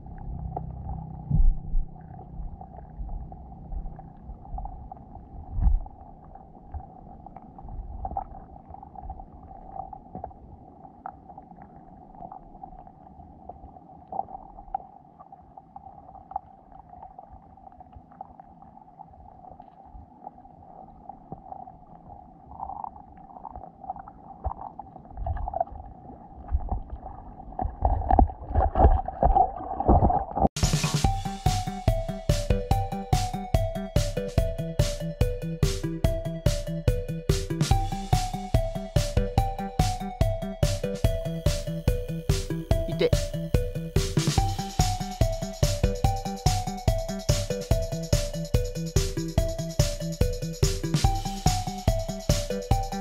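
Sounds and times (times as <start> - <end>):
low rumbling bumps: 0.0 - 7.0
muffled underwater hum: 0.0 - 29.1.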